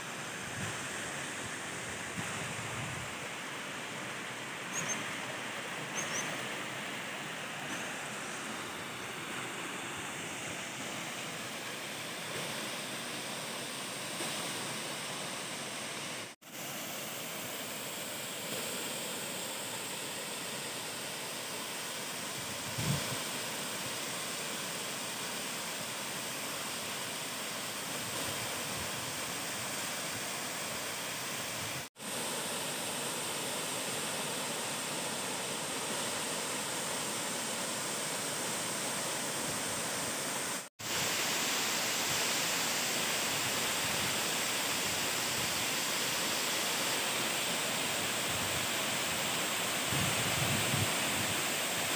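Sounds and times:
waterfall rushing: 23.2 - 51.9.

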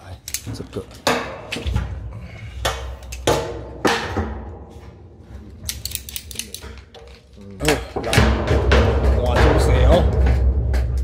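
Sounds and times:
tools knocking on metal tank: 8.0 - 11.0.

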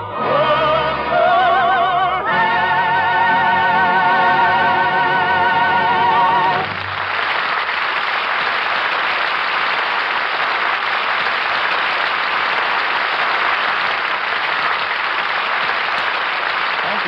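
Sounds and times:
audience applauding: 5.9 - 17.0.

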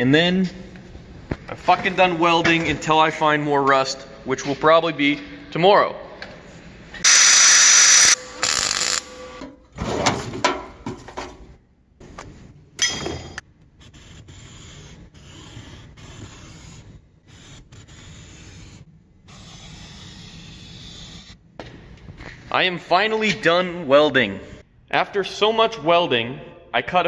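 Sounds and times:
workshop clatter: 1.3 - 4.7, 8.2 - 13.7
angle grinder cutting steel: 7.0 - 9.2
marker rubbing on plywood: 13.8 - 21.4.

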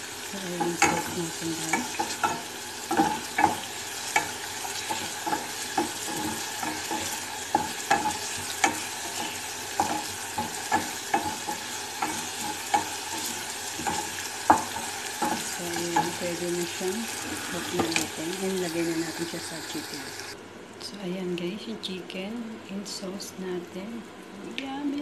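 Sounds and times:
sauce sizzling: 0.0 - 20.4
spatula knocking and scraping pan: 0.6 - 18.9.

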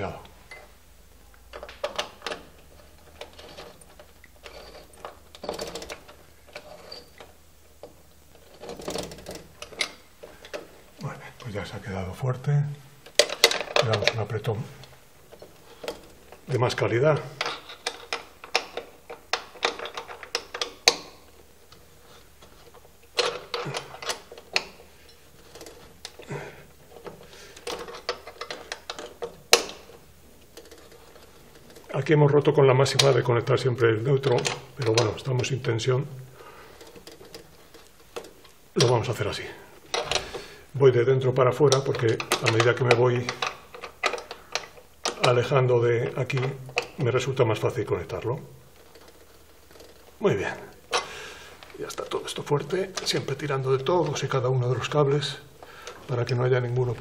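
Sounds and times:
clicks of cables and metal terminals: 17.4 - 26.3
clicks and taps of wire work: 17.4 - 31.9, 36.7 - 38.6, 41.7 - 45.4.

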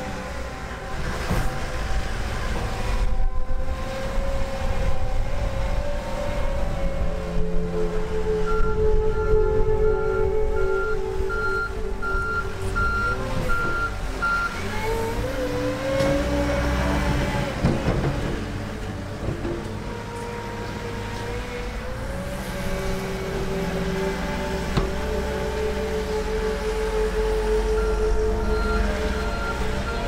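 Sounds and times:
diesel engine running: 0.0 - 30.0
reversing alarm beeping: 8.4 - 14.6, 27.7 - 30.0.

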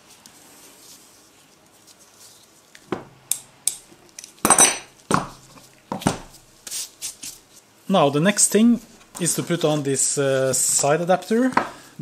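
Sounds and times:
tools clinking on a workbench: 4.2 - 4.9.

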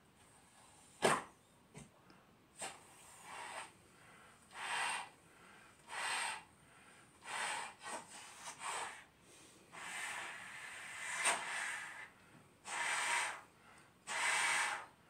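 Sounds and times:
person blowing up balloon: 2.6 - 3.8, 4.5 - 5.1, 5.8 - 6.5, 7.2 - 9.1, 9.7 - 15.0.

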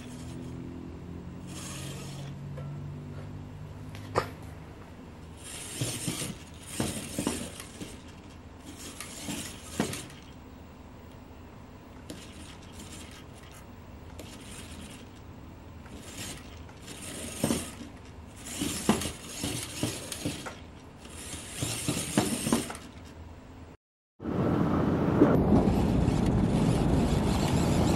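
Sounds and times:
toy car motor whirring: 0.0 - 0.7, 1.4 - 2.4, 5.4 - 10.4, 12.0 - 15.2, 15.9 - 23.1, 25.8 - 27.9.

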